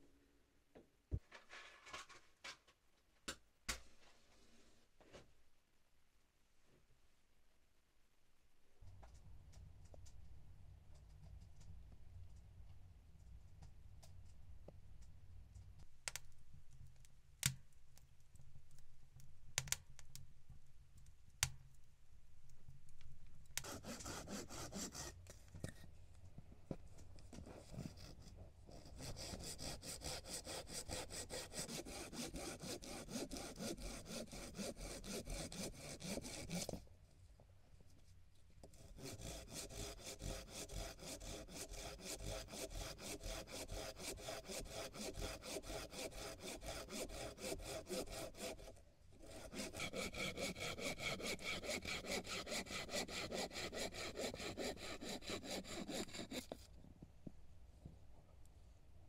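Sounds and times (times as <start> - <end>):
hand saw cutting wood: 23.6 - 25.8, 27.4 - 36.8, 38.7 - 56.7.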